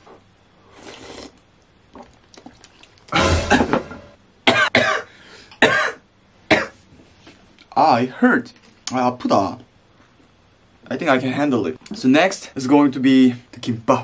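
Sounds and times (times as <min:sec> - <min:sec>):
faint slurp of soup: 0:00.7 - 0:01.4
man coughing hard: 0:03.2 - 0:06.8.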